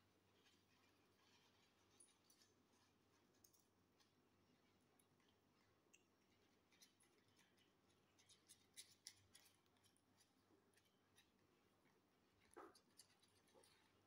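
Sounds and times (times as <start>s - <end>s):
faint small clicks: 3.3s - 4.1s.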